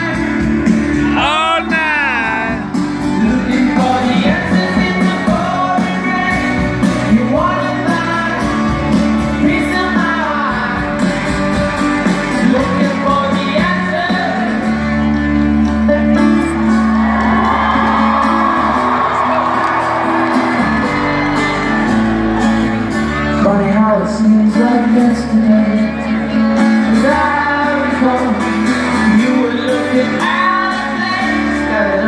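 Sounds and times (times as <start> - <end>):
lead vocal singing: 0.0 - 14.7, 23.4 - 32.0
bass guitar: 0.0 - 32.0
drums: 0.0 - 32.0
electric guitars: 0.0 - 32.0.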